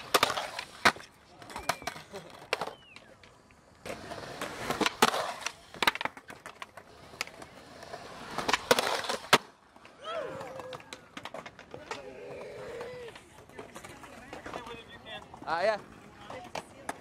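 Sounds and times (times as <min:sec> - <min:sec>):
skateboard clacks: 0:00.0 - 0:17.0
skateboard wheels rolling on concrete: 0:00.0 - 0:17.0
skateboard scraping on ledge: 0:03.8 - 0:09.5.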